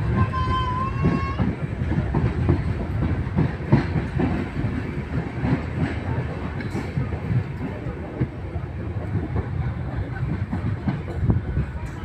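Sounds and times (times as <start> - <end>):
train coach rumbling on track: 0.0 - 12.0
wheels clicking over rail joints: 0.0 - 12.0.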